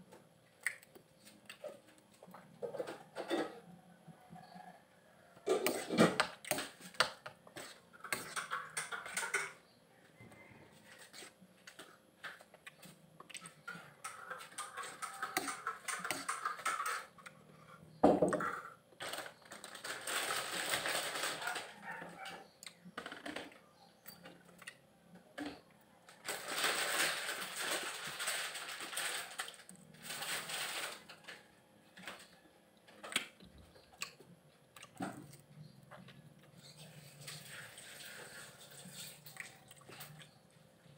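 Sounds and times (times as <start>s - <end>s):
chewing and slurping: 10.8s - 17.6s, 36.4s - 40.4s.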